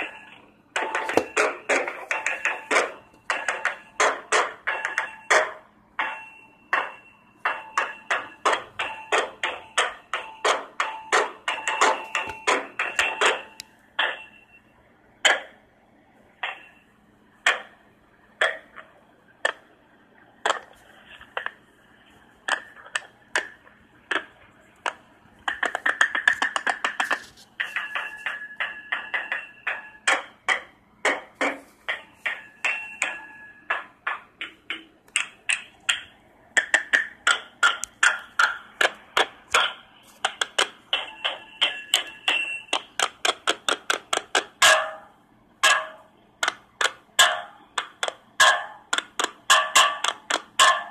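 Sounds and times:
sharp taps with ringing ping: 0.0 - 14.5.

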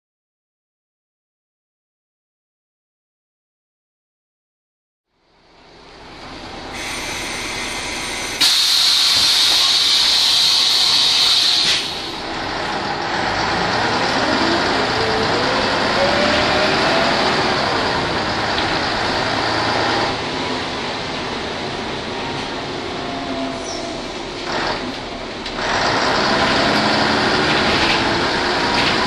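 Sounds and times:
bus diesel engine accelerating: 5.3 - 29.0
compressed air hiss: 6.8 - 12.2.

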